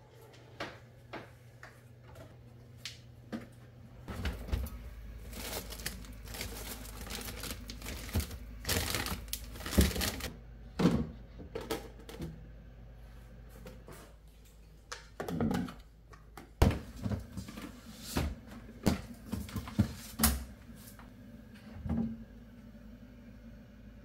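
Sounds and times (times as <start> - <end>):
plastic bags crinkling: 4.1 - 10.3.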